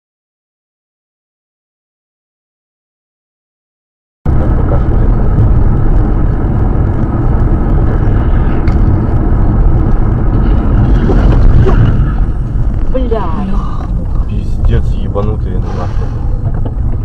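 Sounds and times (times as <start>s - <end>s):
car engine noise: 4.3s - 17.0s
road noise inside car cabin: 4.3s - 17.0s.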